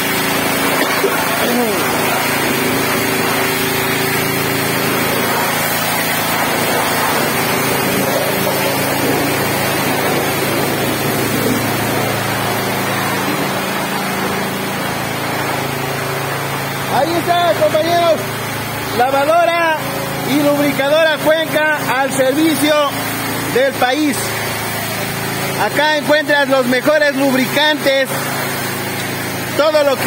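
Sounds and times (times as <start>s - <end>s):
motor humming: 0.0s - 30.0s
water spray hissing on metal: 0.0s - 30.0s.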